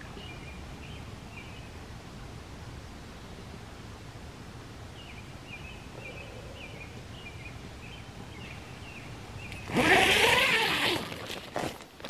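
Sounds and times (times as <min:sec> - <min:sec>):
tent fabric rustling: 0:09.6 - 0:12.0.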